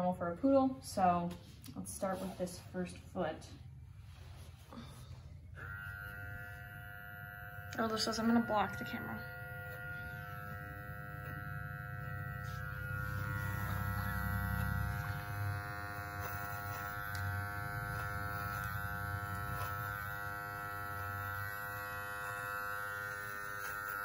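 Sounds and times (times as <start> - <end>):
pet clippers humming: 5.5 - 24.0.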